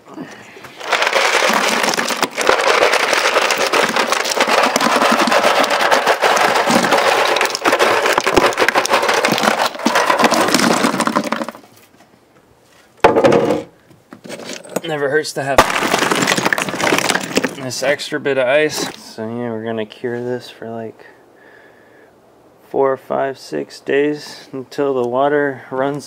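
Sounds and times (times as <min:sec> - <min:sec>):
ice cubes clattering into cooler: 0:00.7 - 0:11.7, 0:14.2 - 0:15.0, 0:15.6 - 0:18.1.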